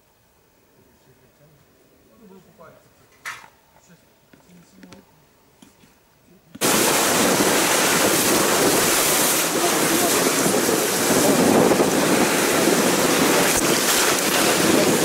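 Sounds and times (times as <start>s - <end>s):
rocky river rushing: 6.6s - 15.0s
vehicle driving on wet gravel: 6.6s - 15.0s.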